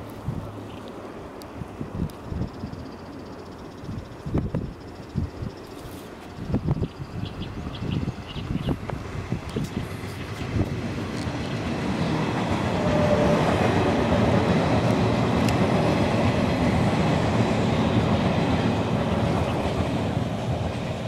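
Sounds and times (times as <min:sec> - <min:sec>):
train passing rumble: 0:00.0 - 0:21.0.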